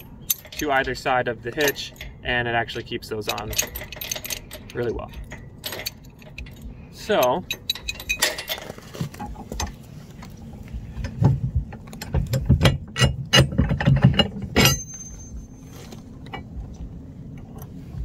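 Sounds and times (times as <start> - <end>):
metal clicking and scraping: 0.0 - 17.8
sharp metal clank ringing: 14.5 - 15.7.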